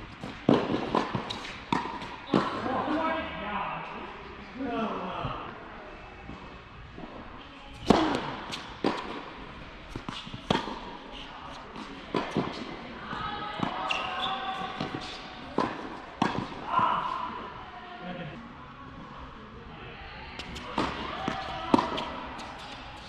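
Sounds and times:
tennis ball bouncing on court: 0.2 - 2.7, 7.8 - 17.1, 20.4 - 23.0
tennis ball struck by rackets: 0.2 - 2.7, 7.8 - 11.0, 11.6 - 12.8, 13.6 - 16.6, 20.4 - 23.0.

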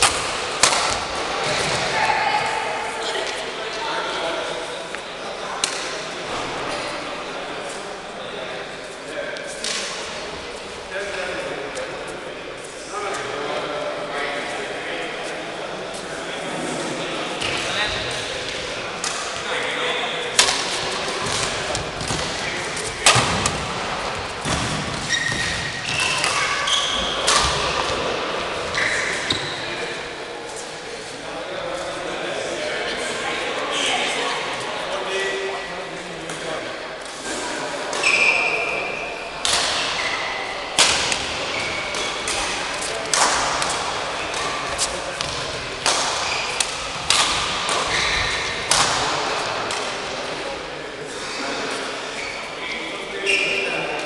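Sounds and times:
racket hitting shuttlecock: 0.0 - 1.9, 20.3 - 22.4, 23.0 - 28.0, 39.4 - 50.0
shoes squeaking on court floor: 24.1 - 29.9, 37.9 - 39.2, 41.4 - 48.7, 52.1 - 53.9.

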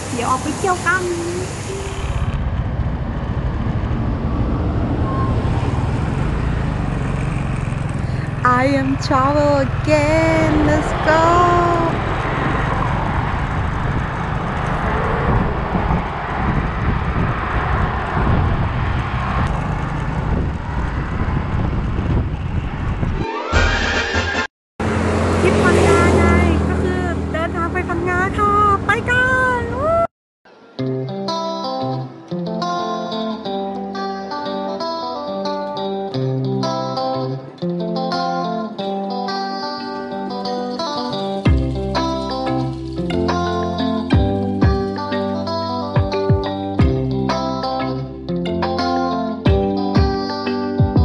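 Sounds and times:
motorbike engine: 0.0 - 29.9
wind buffeting microphone: 8.2 - 23.2
plucked guitar music: 30.5 - 51.0.

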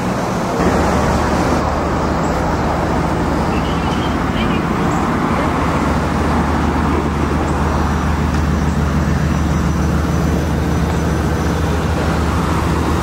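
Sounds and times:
vehicle engine idling: 0.0 - 13.0.

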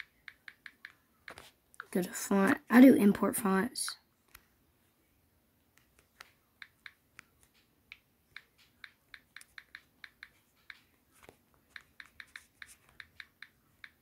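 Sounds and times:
phone keyboard typing clicks: 5.8 - 10.9.

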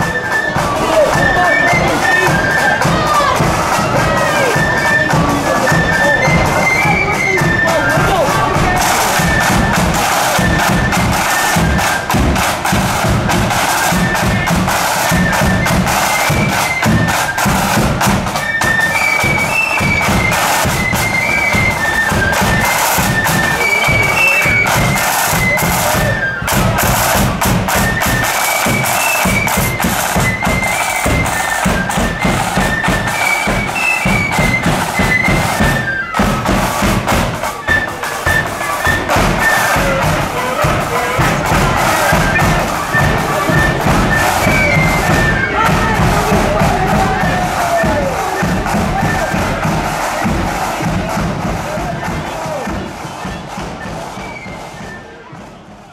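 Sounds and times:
flutes playing melody: 0.0 - 55.9
side drums and bass drum: 0.0 - 55.9.

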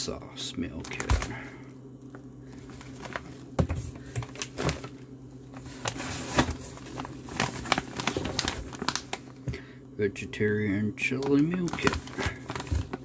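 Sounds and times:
plastic pouch crinkling: 0.8 - 1.4, 2.1 - 9.5, 11.1 - 13.0.

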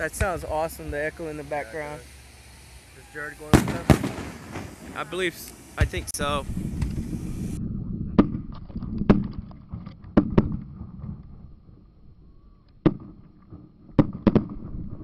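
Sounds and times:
fireworks bangs: 0.0 - 7.6, 12.8 - 15.0.

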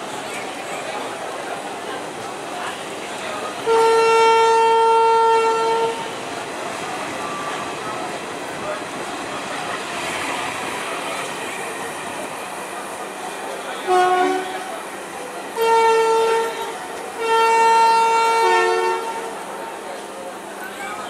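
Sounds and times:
train coaches rolling on rails: 0.0 - 21.0
train horn blasts: 3.6 - 6.1, 13.8 - 14.7, 15.6 - 19.5.

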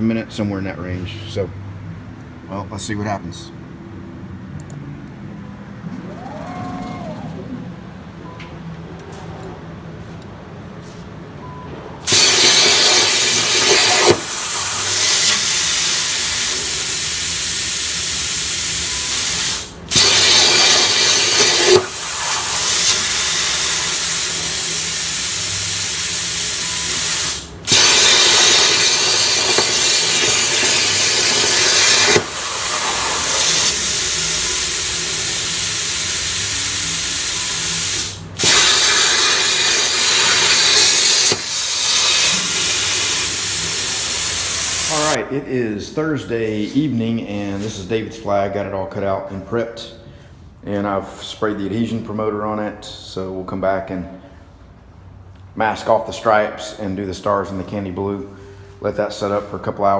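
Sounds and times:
plasma torch hissing: 12.0 - 45.2.

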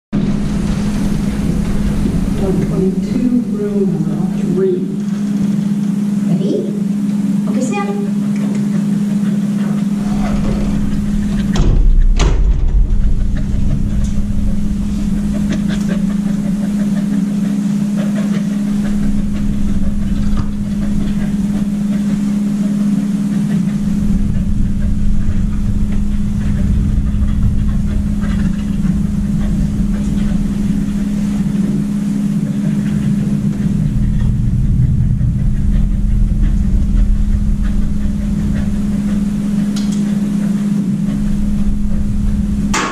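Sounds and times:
deep rumble: 0.1 - 7.5, 8.1 - 42.9
low machine hum: 0.1 - 42.9
sharp knocks: 10.0 - 13.4.

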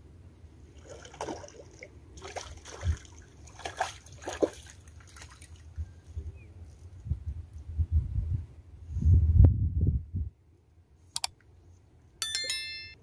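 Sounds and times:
fish splashing at water surface: 0.8 - 5.6.

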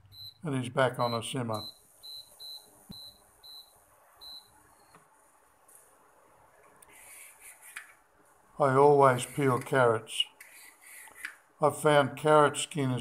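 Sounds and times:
short high-pitched beeps: 1.0 - 5.0.

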